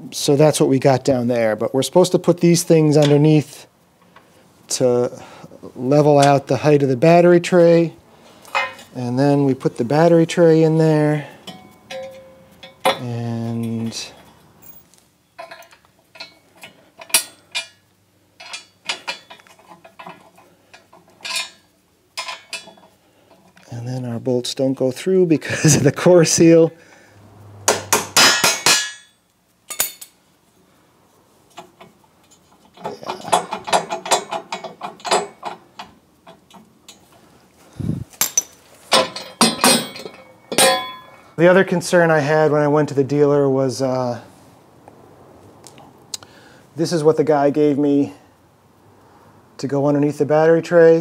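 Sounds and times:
bolts clinking on metal: 2.6 - 3.4, 6.0 - 7.8, 8.4 - 23.8, 27.7 - 30.2, 31.5 - 37.2, 38.1 - 41.3.

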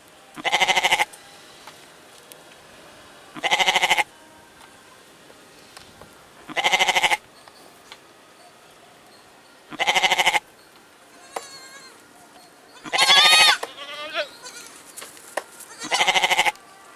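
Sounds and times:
goat kid bleating: 0.4 - 1.1, 3.4 - 4.1, 6.5 - 7.2, 9.7 - 10.4, 11.1 - 12.0, 12.8 - 14.8, 15.6 - 16.6.

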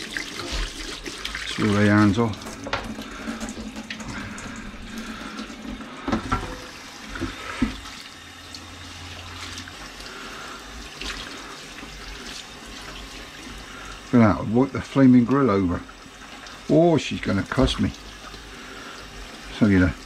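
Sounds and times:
tap running into steel sink: 2.4 - 4.5, 6.0 - 7.8.

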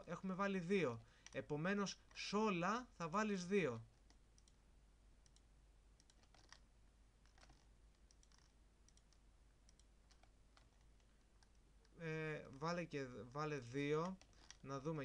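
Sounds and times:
computer mouse clicks: 1.2 - 1.4, 3.9 - 4.6, 5.2 - 6.6, 7.2 - 12.7, 14.0 - 14.6.

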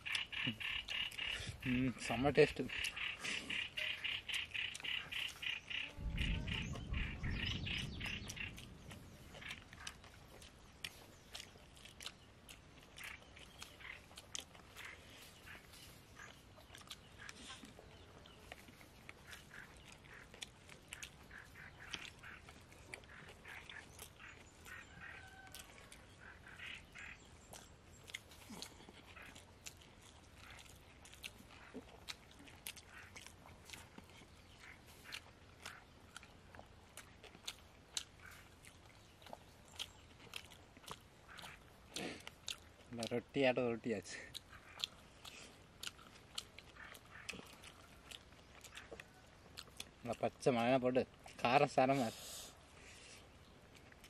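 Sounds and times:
rapid chattering call: 0.0 - 10.0
chewing: 0.0 - 54.0
low rumble: 5.9 - 10.4.

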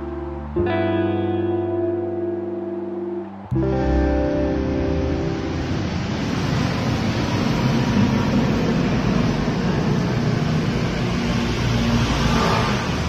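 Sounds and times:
road traffic hiss: 3.8 - 13.0.

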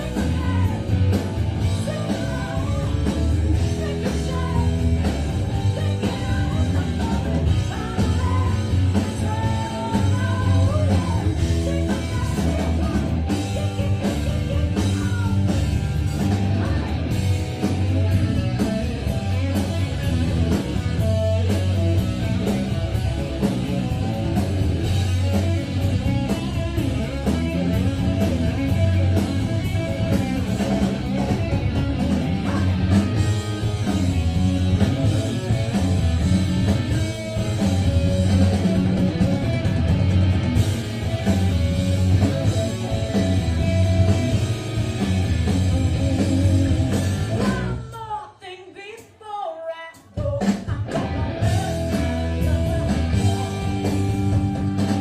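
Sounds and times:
singer vocal line: 0.0 - 17.2, 47.2 - 54.2
rock band playing live: 0.0 - 48.2, 49.9 - 55.0.

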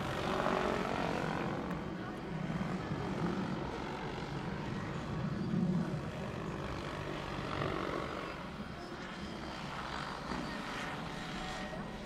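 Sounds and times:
rc helicopter rotor running: 0.0 - 12.0.

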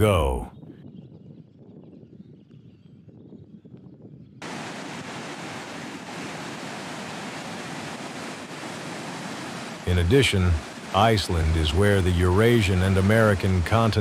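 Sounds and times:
faint outdoor ambience: 4.4 - 14.0.

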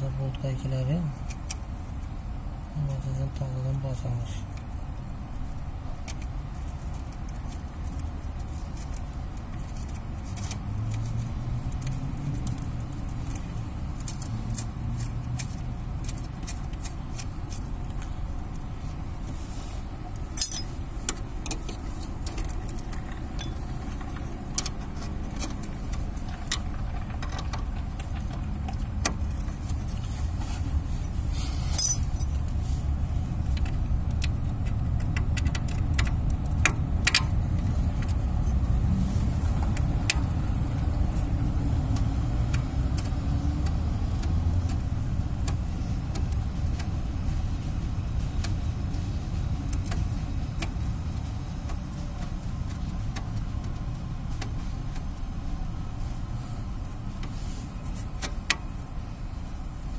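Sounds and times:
steady low rumble: 0.0 - 59.9
metallic clicks of bolts and nuts: 20.4 - 28.3, 31.7 - 32.4.

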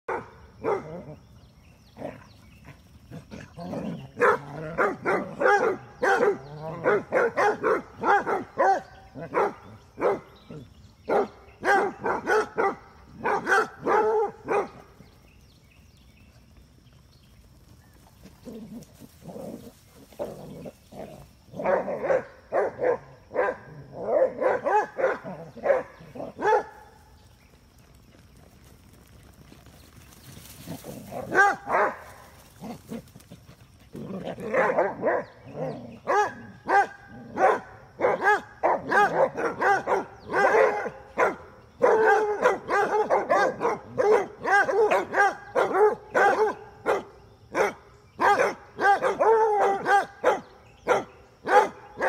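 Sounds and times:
dogs barking excitedly: 0.1 - 1.2, 3.1 - 15.0, 18.5 - 27.0, 31.0 - 52.0.

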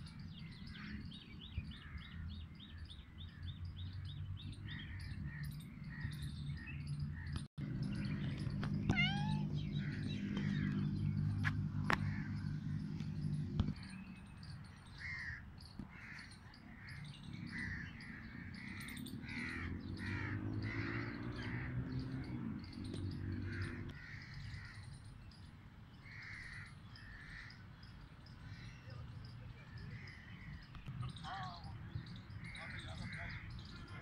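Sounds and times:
crows cawing: 7.2 - 13.3, 15.0 - 22.0, 23.2 - 24.9, 26.0 - 27.6, 32.0 - 33.9
low machine hum: 7.6 - 13.7.

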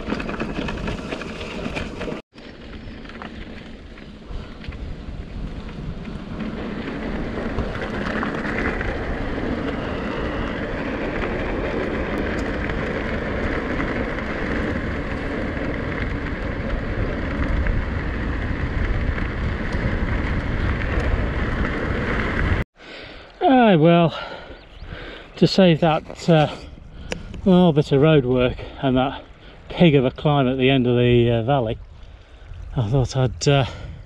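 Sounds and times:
wind buffeting microphone: 0.0 - 22.6, 24.0 - 34.0
bike tyres on rough muddy trail: 0.0 - 34.0.

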